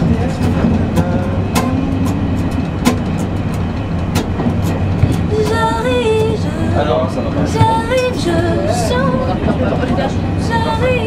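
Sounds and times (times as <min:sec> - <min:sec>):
acoustic guitar chords strummed: 0:00.0 - 0:09.2
train rumble inside carriage: 0:00.0 - 0:11.0.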